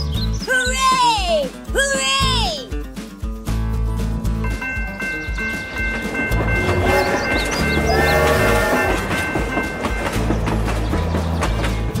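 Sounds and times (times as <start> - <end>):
background music with bass line: 0.0 - 9.4
train wheels clattering over rail joints: 4.6 - 12.0.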